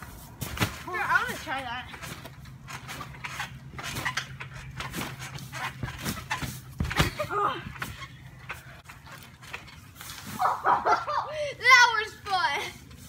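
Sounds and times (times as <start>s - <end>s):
thumps on trampoline mat: 0.4s - 1.0s, 3.8s - 8.0s.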